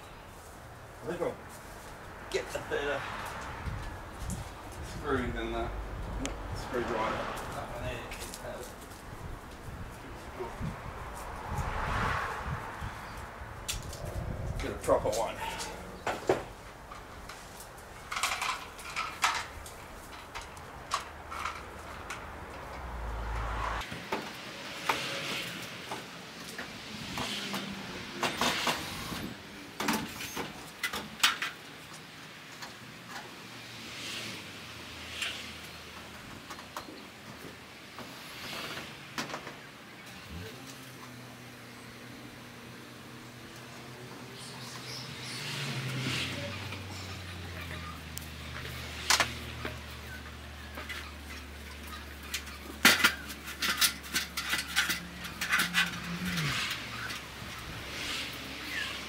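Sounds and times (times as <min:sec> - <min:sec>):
light metallic clicks and rattles: 0:50.8 - 0:57.7.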